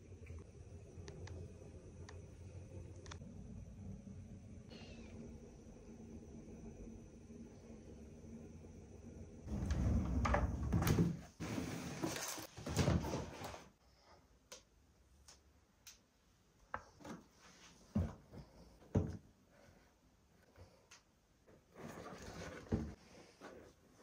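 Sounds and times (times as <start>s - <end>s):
kitchen drawer sliding: 9.5s - 13.7s.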